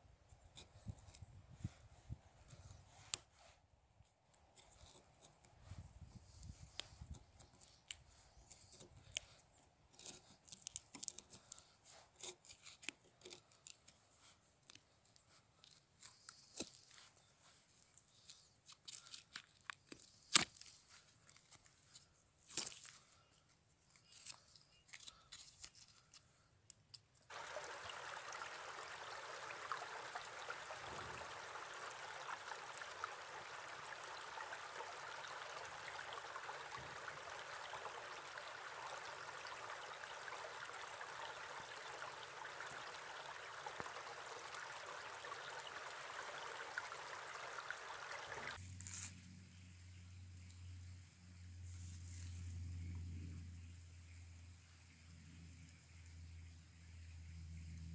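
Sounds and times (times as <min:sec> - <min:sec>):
stream running over rocks: 0:27.3 - 0:48.6.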